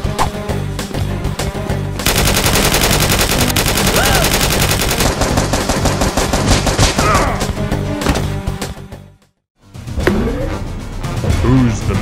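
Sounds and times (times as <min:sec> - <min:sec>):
machine-gun fire: 0:02.0 - 0:07.0.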